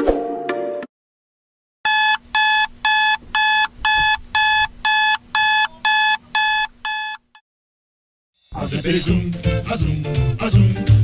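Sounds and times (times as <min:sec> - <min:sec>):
alarm clock beeping: 0:01.9 - 0:07.4.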